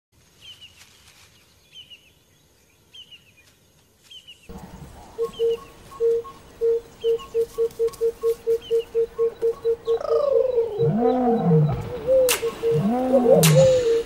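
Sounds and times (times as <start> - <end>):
high falling bird chirps: 5.2 - 14.0
low pulsed bird call: 5.2 - 14.0.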